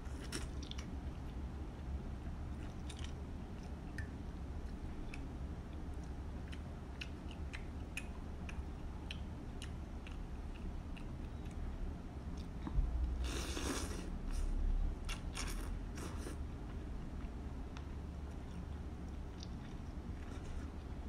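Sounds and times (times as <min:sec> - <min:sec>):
person chewing noodles: 0:00.0 - 0:01.4, 0:02.5 - 0:11.6, 0:12.3 - 0:14.5, 0:15.1 - 0:21.0
slurping noodles: 0:13.2 - 0:14.4.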